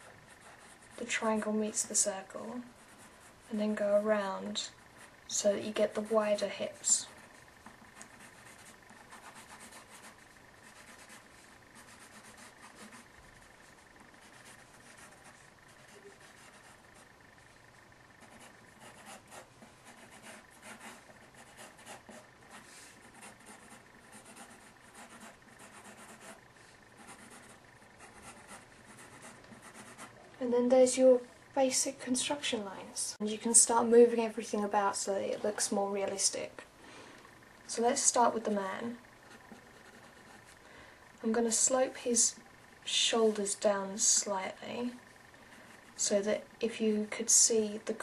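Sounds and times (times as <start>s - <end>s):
pencil scratching on paper: 0.0s - 1.5s, 2.6s - 5.2s, 5.8s - 17.1s, 18.2s - 30.2s, 39.2s - 40.5s.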